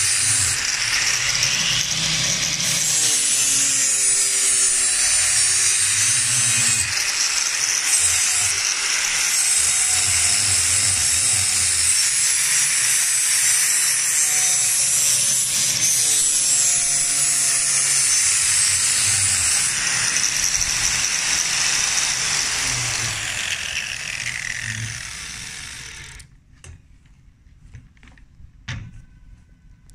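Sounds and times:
angle grinder grinding steel: 0:00.0 - 0:26.3.

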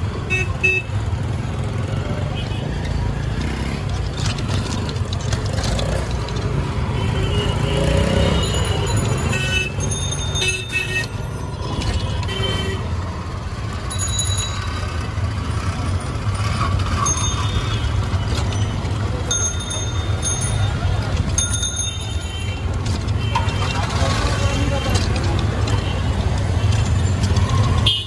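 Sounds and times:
auto-rickshaw engines rumbling: 0:00.0 - 0:28.0
bell rings: 0:08.2 - 0:11.0, 0:13.8 - 0:15.0, 0:16.9 - 0:22.5
passers-by talking: 0:15.6 - 0:27.8.

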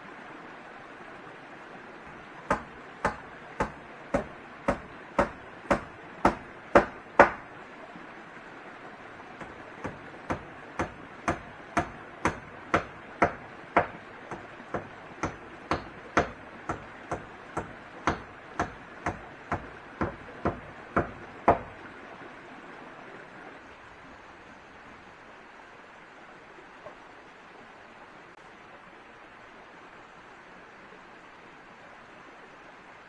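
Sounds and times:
hand tool striking wood: 0:02.5 - 0:07.4, 0:09.4 - 0:21.7.

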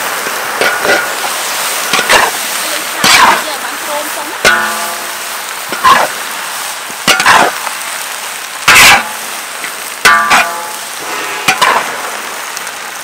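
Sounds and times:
steady sizzle: 0:00.0 - 0:13.0
metal spatula scraping wok: 0:00.6 - 0:06.2, 0:07.0 - 0:07.6, 0:10.0 - 0:12.0.

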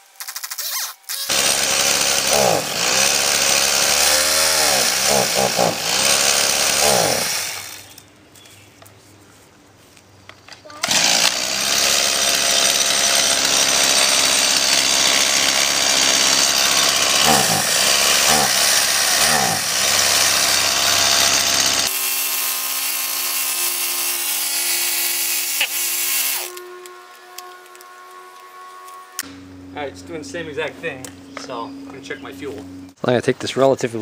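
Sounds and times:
chainsaw engine running: 0:01.3 - 0:08.0, 0:10.7 - 0:26.8.

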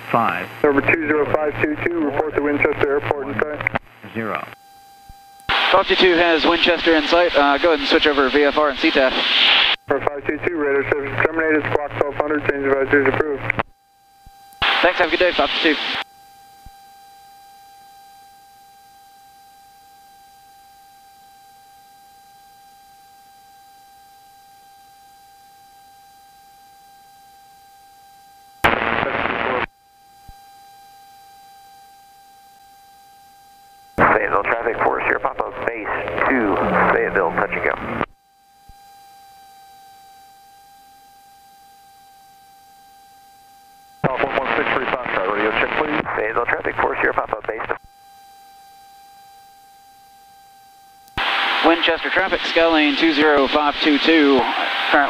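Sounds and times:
faint high-pitched electrical whine: 0:00.1 - 0:55.0.

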